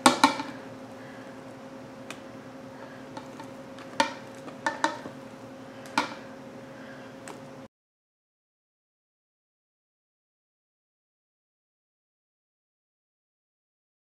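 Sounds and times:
steady low hum: 0.0s - 7.7s.

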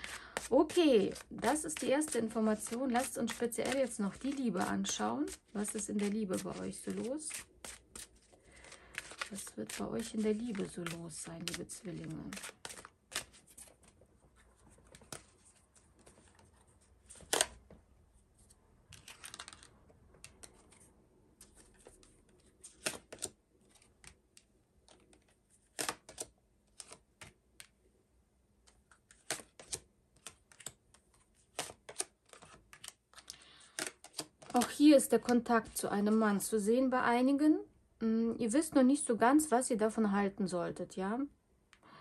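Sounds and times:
card sliding rustle: 0.0s - 14.0s, 14.6s - 17.6s, 18.4s - 24.2s, 28.9s - 34.6s.

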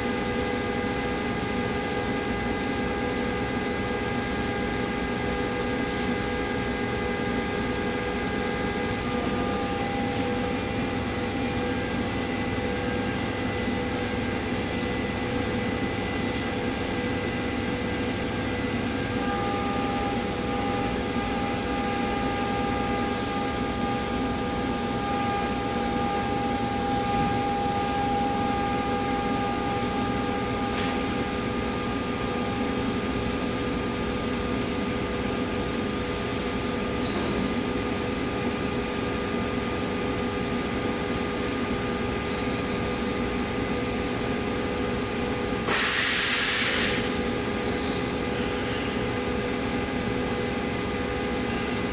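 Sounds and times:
waterjet machine humming: 6.7s - 33.0s
loud hiss: 45.7s - 47.1s.

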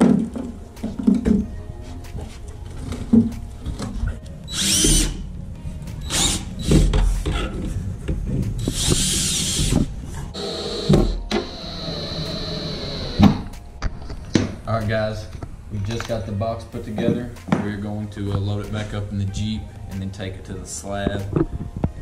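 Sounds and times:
cordless drill running: 8.7s - 9.8s, 10.4s - 13.2s.

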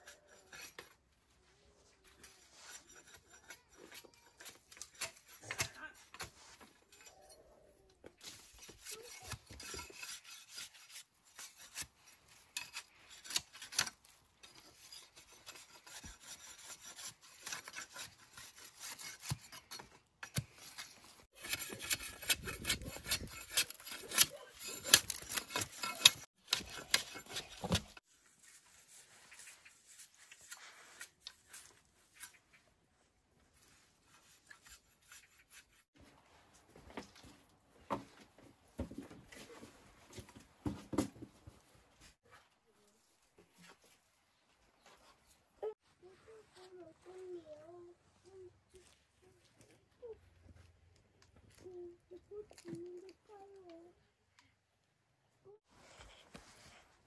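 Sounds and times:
machete scraping bamboo: 2.1s - 7.3s, 8.2s - 28.0s, 34.0s - 35.9s.

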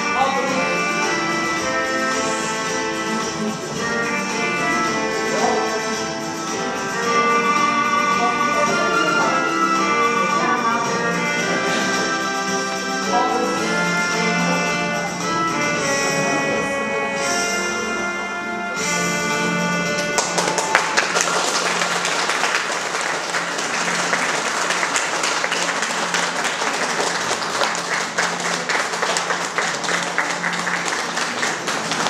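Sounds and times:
music with held notes: 0.0s - 32.0s
audience applauding: 20.0s - 32.0s.

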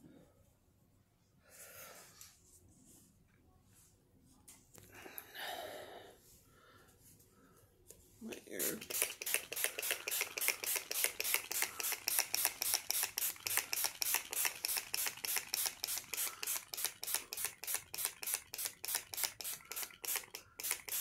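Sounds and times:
spray bottle hissing sprays: 8.6s - 21.0s.

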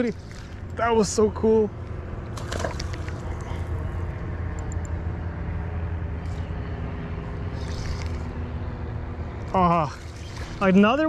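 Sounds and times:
steady low rumble: 0.0s - 11.0s
fishing rod swish: 7.5s - 8.3s.

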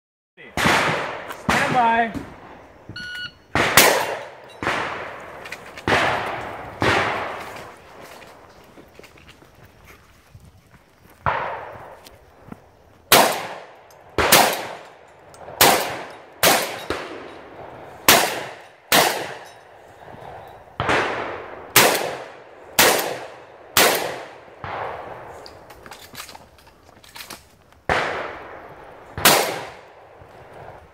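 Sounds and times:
shotgun shots: 0.5s - 2.5s, 3.5s - 7.8s, 11.2s - 12.0s, 13.1s - 14.9s, 15.6s - 17.4s, 18.0s - 19.5s, 20.8s - 25.4s, 27.9s - 28.6s, 29.2s - 29.9s.

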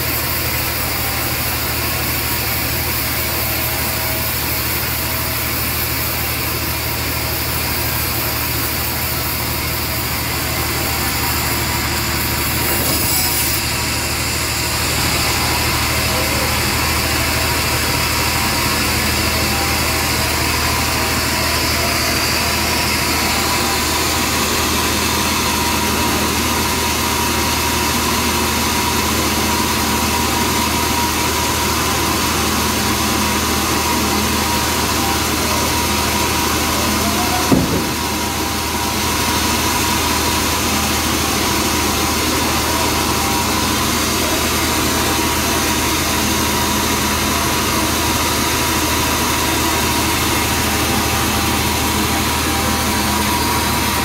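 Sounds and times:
band saw cutting a log: 0.0s - 54.0s
brief knock: 37.5s - 38.1s.

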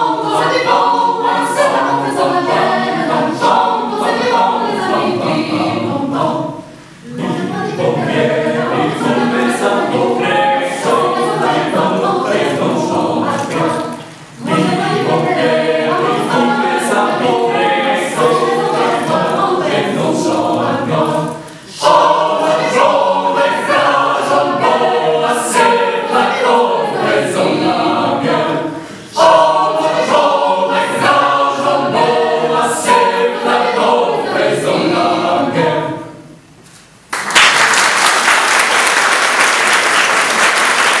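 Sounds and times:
choir singing a cappella: 0.0s - 36.6s
audience applause: 37.1s - 41.0s.

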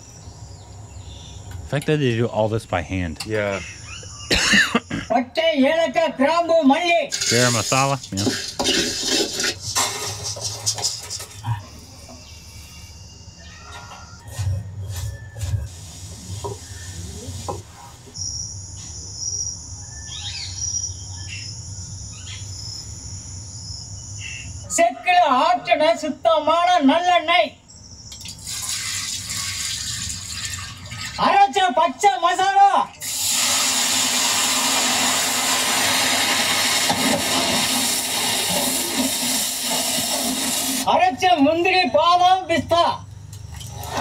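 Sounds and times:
bird chirps: 3.4s - 5.0s, 11.6s - 14.2s, 18.2s - 24.7s
paste sizzling in hot oil: 7.1s - 11.1s, 28.4s - 30.8s, 33.0s - 40.9s.

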